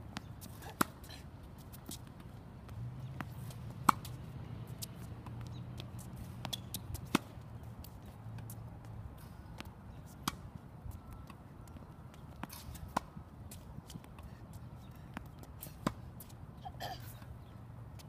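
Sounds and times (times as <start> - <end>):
tennis balls struck by racket: 0.1 - 1.1, 1.8 - 8.6, 9.2 - 10.5, 12.4 - 13.2, 15.2 - 16.1.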